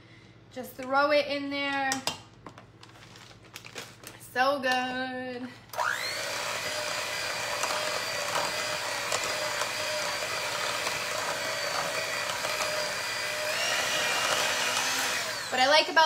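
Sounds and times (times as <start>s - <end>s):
electric hand mixer whining: 5.8s - 16.0s.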